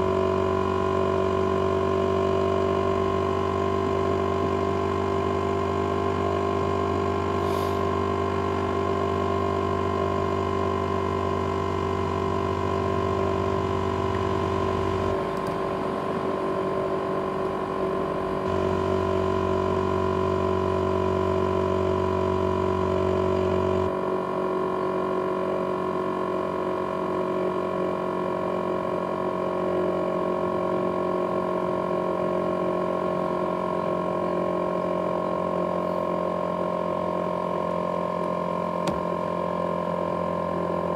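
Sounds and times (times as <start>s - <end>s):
low hum: 0.0s - 27.0s
laptop fan whining: 0.0s - 40.9s.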